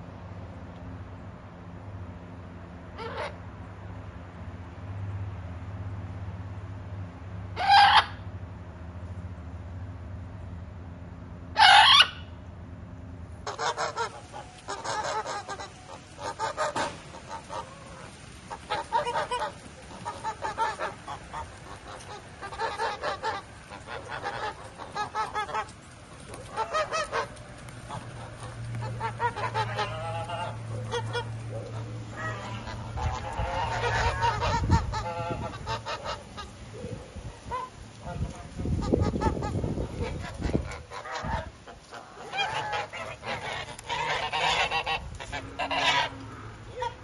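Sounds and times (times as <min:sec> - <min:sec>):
geese honking: 0:03.0 - 0:03.4, 0:07.6 - 0:08.2, 0:11.6 - 0:12.3, 0:13.4 - 0:36.6, 0:37.4 - 0:47.0
macaw squawk: 0:07.6 - 0:08.2, 0:11.6 - 0:12.3.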